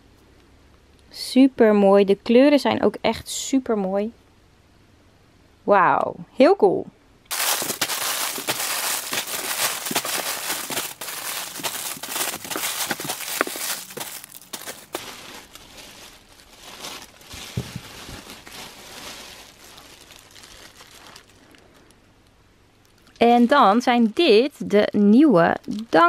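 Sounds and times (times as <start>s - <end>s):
plastic wrappers crinkling: 7.3s - 22.0s, 25.3s - 26.0s.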